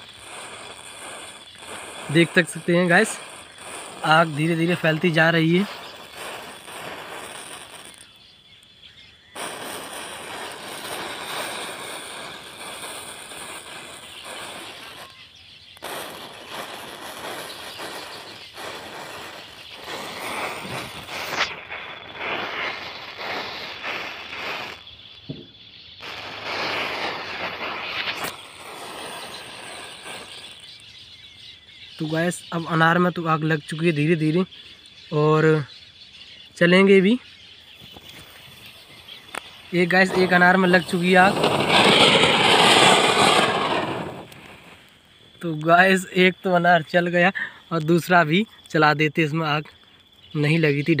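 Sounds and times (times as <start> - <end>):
matches flaring with crackle: 0.0 - 25.1, 26.0 - 31.3, 37.8 - 46.4.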